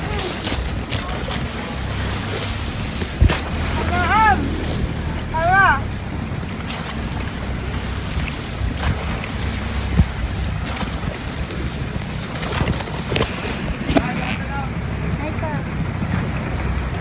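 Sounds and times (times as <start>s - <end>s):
water rushing past hull: 0.0s - 17.0s
wind buffeting microphone: 0.0s - 17.0s.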